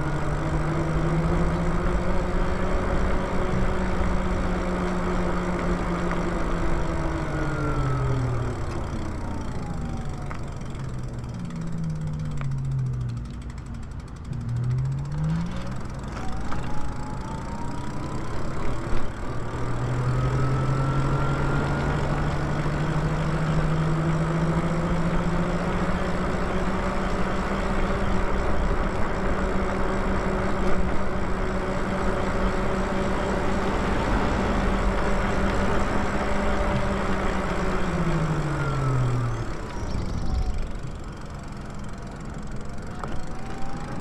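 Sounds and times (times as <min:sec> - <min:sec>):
wind and tyre rush: 0:00.0 - 0:44.0
electric motor whining: 0:14.2 - 0:44.0.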